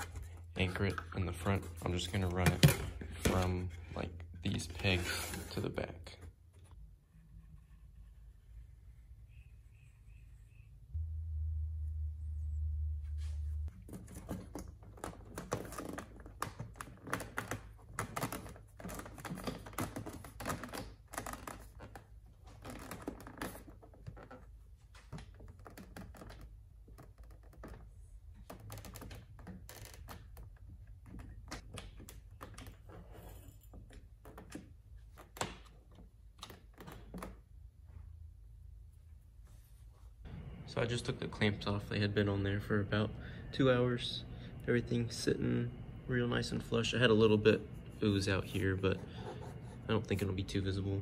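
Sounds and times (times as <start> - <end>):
low steady hum: 0.0 - 15.7, 37.6 - 51.0.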